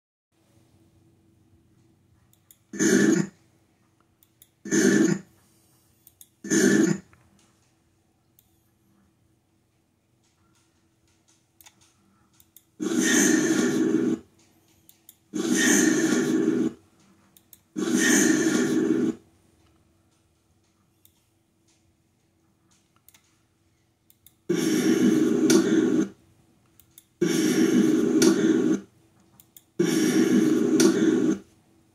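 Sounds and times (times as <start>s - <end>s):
faint steady hum: 0.4s - 31.9s
harsh noisy burst from speakers: 2.8s - 3.3s, 6.5s - 7.0s, 12.8s - 14.2s, 15.4s - 16.8s, 17.8s - 19.2s, 24.5s - 26.2s, 27.2s - 28.9s, 29.8s - 31.5s
loud dense noise: 2.8s - 3.4s, 4.7s - 5.3s, 6.5s - 7.1s, 12.8s - 14.3s, 15.4s - 16.8s, 17.8s - 19.2s, 24.5s - 26.2s, 27.2s - 28.9s, 29.8s - 31.5s.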